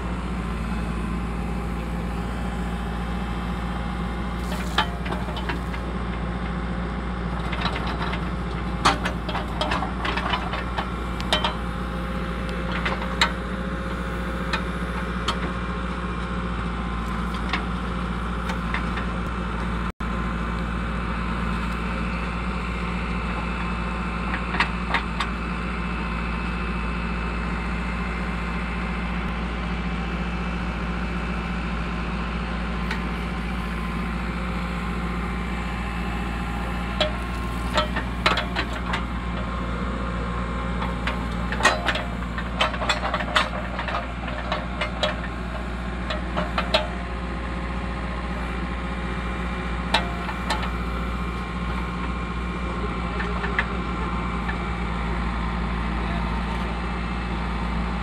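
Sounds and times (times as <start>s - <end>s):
diesel engine running: 0.0s - 58.0s
sharp clicks and knocks: 7.4s - 11.7s, 12.4s - 13.4s, 36.9s - 39.6s, 40.8s - 47.1s, 49.9s - 50.9s.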